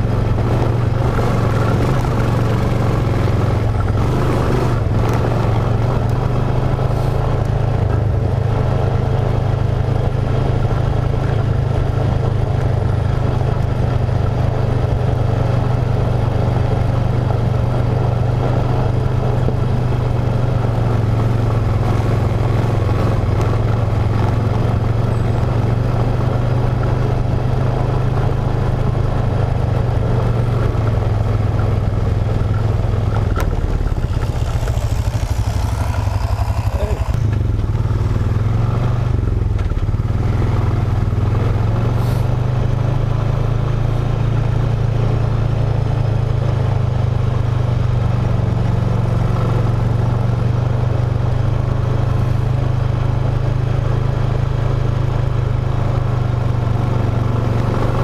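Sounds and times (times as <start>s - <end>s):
atv engine droning: 0.0s - 58.0s.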